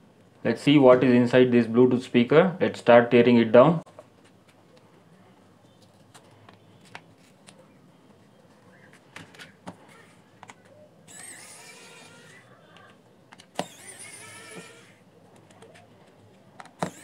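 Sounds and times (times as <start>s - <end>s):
electric screwdriver whirring: 11.1s - 12.4s, 13.5s - 15.0s.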